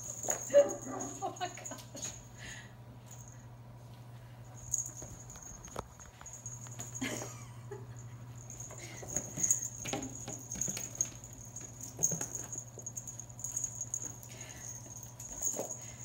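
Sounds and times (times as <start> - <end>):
small monkeys pattering and scrabbling: 8.4 - 16.0.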